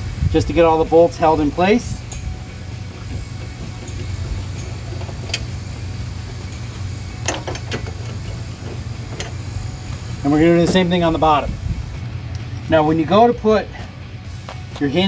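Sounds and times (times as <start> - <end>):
steady low rumble: 0.0 - 15.0
small bolts clicking: 2.9 - 9.6.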